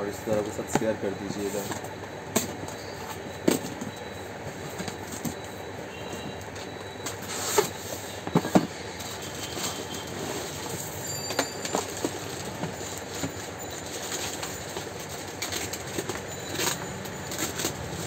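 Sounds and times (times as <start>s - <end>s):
steady background noise: 0.0s - 18.0s
packaging rustling and crackling: 8.4s - 18.0s.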